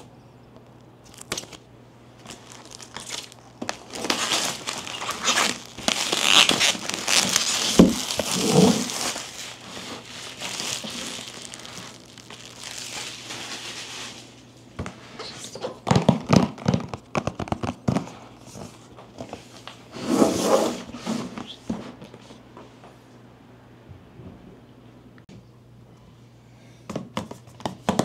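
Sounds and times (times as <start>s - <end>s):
packaging rustling and crinkling: 0.6s - 19.8s.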